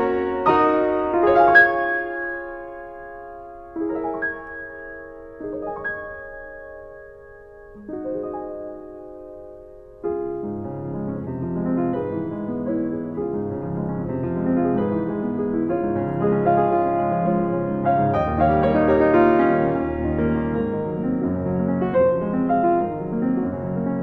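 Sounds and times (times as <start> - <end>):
piano chords: 0.0 - 24.0.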